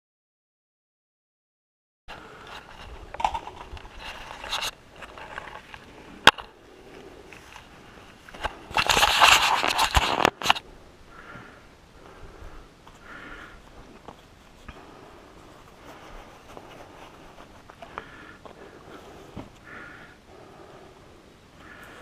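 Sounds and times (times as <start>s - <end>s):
rustling and scraping: 2.1s - 10.6s, 12.8s - 19.9s.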